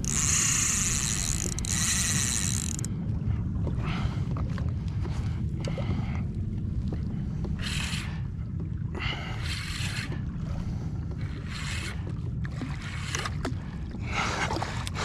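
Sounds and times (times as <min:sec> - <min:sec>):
wind rumbling on microphone: 0:00.0 - 0:15.0
water slapping against kayak hull: 0:03.6 - 0:15.0.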